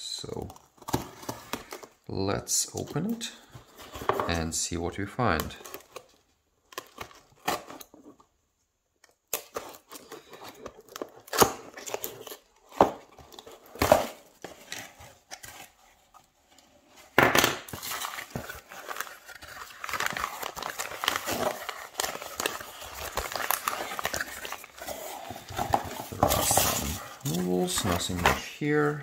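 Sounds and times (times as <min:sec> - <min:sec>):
cardboard box being opened: 0:17.7 - 0:29.0
packing peanuts rustling: 0:17.7 - 0:29.0.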